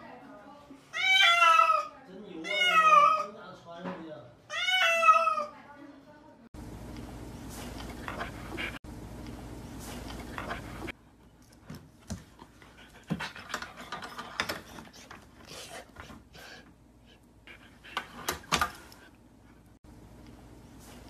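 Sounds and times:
dog panting: 7.6s - 8.8s, 10.0s - 19.7s.

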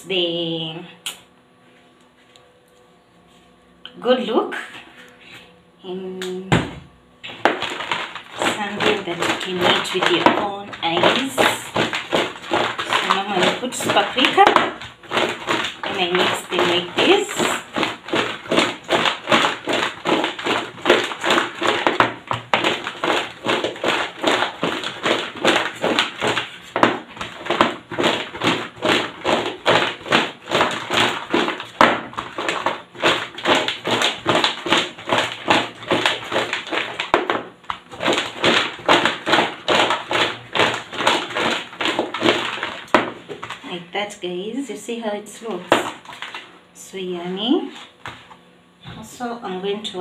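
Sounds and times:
fries tossed in a bowl: 7.3s - 43.8s, 45.6s - 46.5s.

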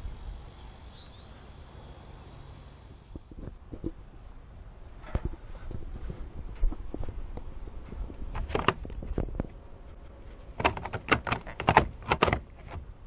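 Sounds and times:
light handling knocks and clicks: 10.3s - 12.9s.

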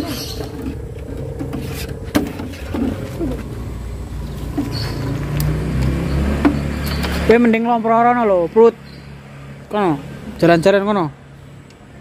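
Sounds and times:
low steady rumble: 0.0s - 6.8s.

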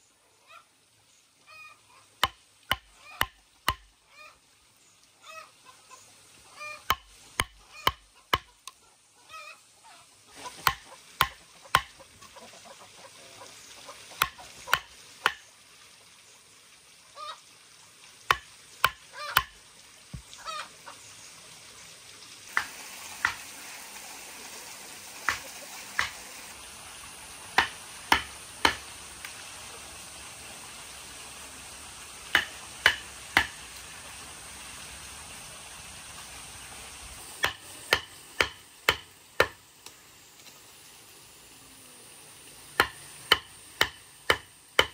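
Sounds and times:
mallet knocking on chisel: 2.2s - 3.9s, 6.9s - 8.5s, 37.4s - 39.6s, 42.8s - 44.9s.

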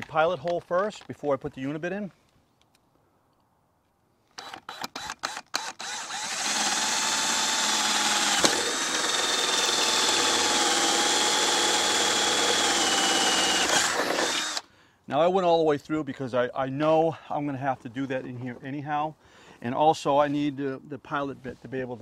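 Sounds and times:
cordless drill whining: 4.4s - 14.7s.

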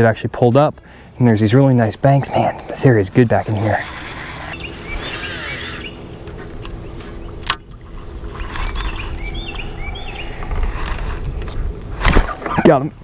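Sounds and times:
steady low hum: 0.0s - 13.0s
small bird chirping: 3.6s - 6.1s, 8.3s - 10.4s.

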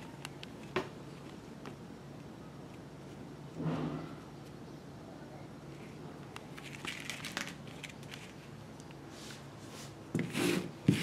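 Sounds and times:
steady low hum: 0.0s - 11.0s
rubber belts clicking and rustling: 6.5s - 8.4s.

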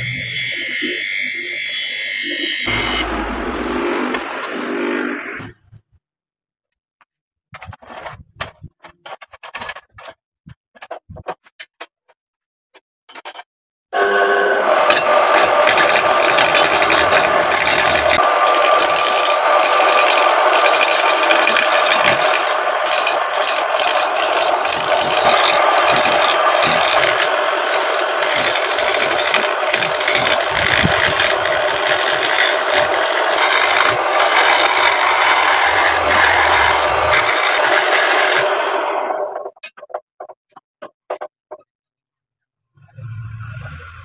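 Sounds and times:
wood lathe running: 2.2s - 5.4s, 14.0s - 39.4s
wood scraping hiss on lathe: 15.0s - 39.0s.

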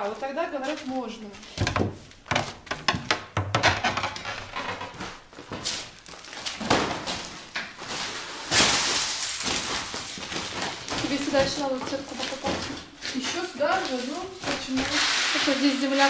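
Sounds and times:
footsteps: 0.0s - 3.2s, 4.5s - 8.4s, 9.0s - 15.5s
bucket knocking: 1.6s - 4.2s.

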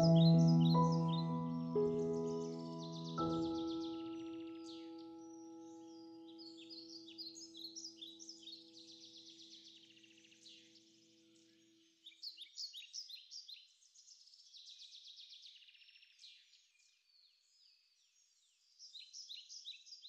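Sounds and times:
held musical tone: 0.0s - 5.3s
birds chirping: 0.0s - 11.5s.

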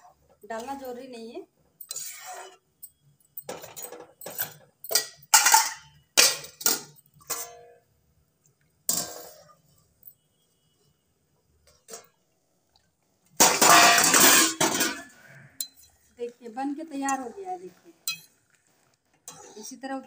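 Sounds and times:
steel utensils clanking on a pan: 3.4s - 7.7s, 13.4s - 16.0s, 18.1s - 18.3s.

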